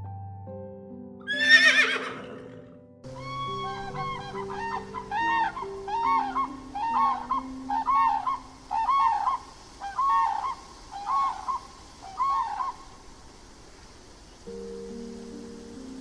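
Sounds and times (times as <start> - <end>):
soft background music: 0.0 - 9.4, 14.5 - 16.0
crane calling: 3.1 - 13.1.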